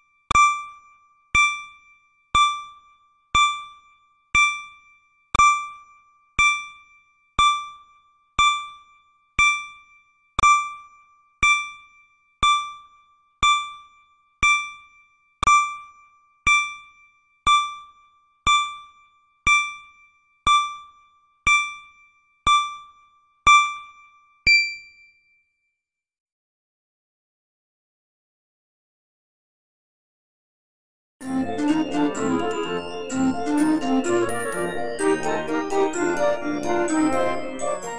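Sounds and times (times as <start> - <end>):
timer electronic chime ticking: 0.3 - 25.1
higher electronic tone: 24.5 - 24.9.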